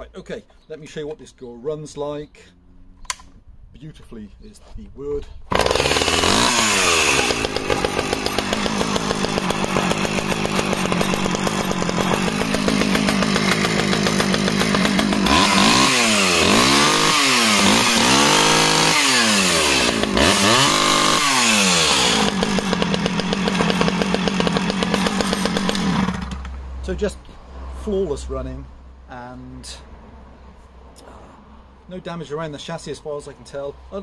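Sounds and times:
chainsaw engine idling and revving: 0:05.5 - 0:26.6.

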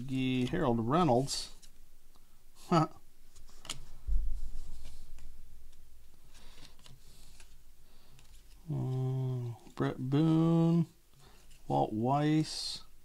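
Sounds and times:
cards being flipped through: 0:01.4 - 0:01.8, 0:03.3 - 0:09.8.

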